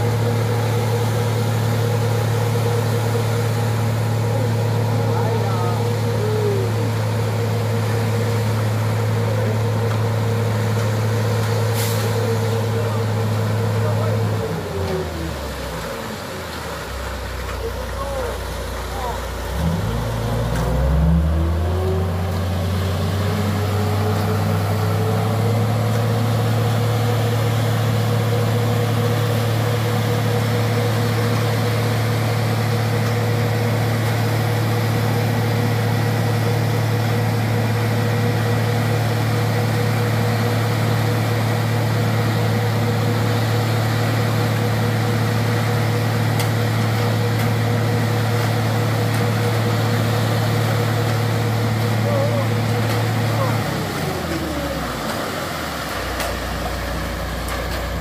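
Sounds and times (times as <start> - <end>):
machinery engine revving with low hum: 18.8 - 58.0.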